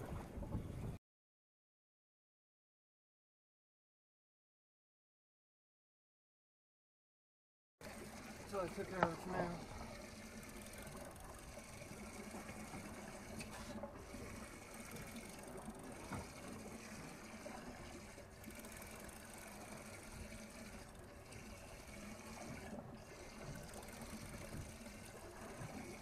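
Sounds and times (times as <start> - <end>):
water lapping against boat hull: 0.0 - 1.0, 7.8 - 26.0.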